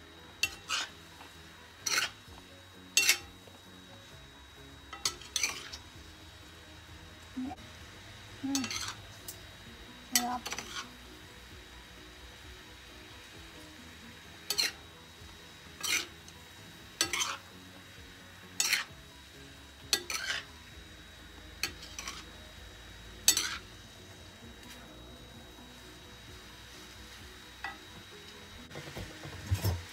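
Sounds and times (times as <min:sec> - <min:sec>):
utensils scraping a frying pan: 0:00.3 - 0:03.6, 0:04.9 - 0:06.0, 0:08.5 - 0:09.3, 0:10.1 - 0:11.0, 0:14.4 - 0:15.0, 0:15.6 - 0:17.6, 0:18.4 - 0:19.1, 0:19.8 - 0:20.7, 0:21.6 - 0:22.4, 0:23.2 - 0:23.7.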